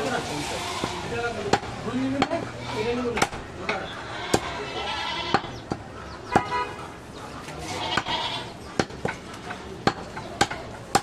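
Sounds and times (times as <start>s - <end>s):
knife chopping meat on wooden block: 8.7s - 11.0s.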